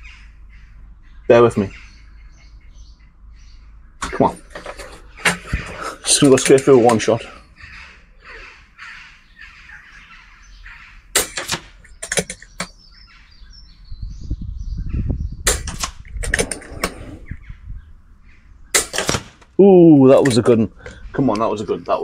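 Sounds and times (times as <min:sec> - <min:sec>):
air rifle shots: 0:11.1 - 0:11.8, 0:15.4 - 0:17.2, 0:18.7 - 0:19.5.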